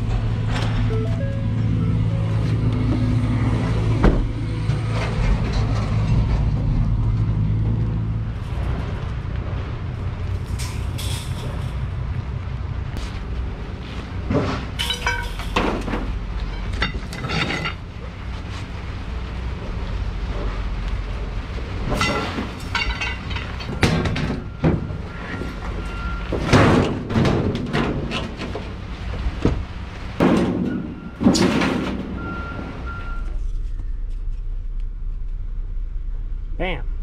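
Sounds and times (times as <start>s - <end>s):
low rumble: 0.0s - 37.0s
vehicle engine humming: 0.0s - 37.0s
scrap metal crashing: 3.8s - 7.4s, 10.2s - 12.0s, 13.8s - 17.9s, 21.8s - 29.3s, 30.2s - 34.4s.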